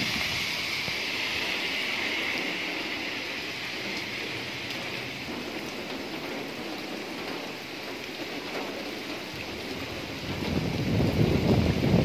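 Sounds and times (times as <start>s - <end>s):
steady rain on trees and road: 0.0s - 12.0s.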